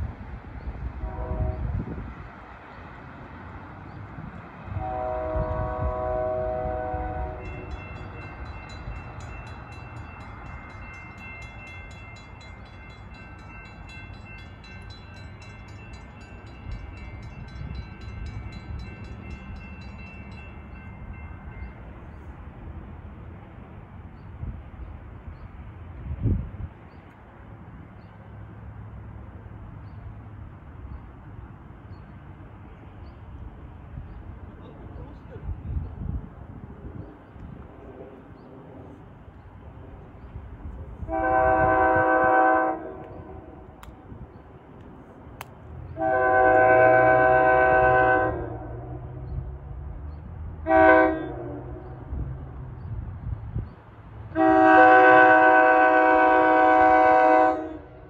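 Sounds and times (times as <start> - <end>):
train rumble: 0.0 - 58.0
train horn blasts: 1.0 - 2.0, 4.7 - 8.1, 41.0 - 43.6, 45.9 - 49.1, 50.6 - 52.1, 54.3 - 58.0.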